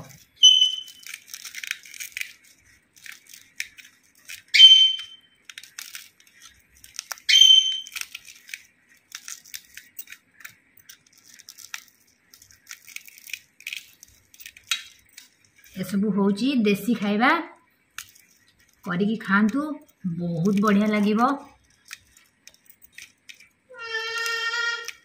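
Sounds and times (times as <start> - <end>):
wet crackling and squishing: 0.0 - 15.9, 17.8 - 25.0
short loud high squeaks: 0.4 - 1.1, 7.3 - 8.0.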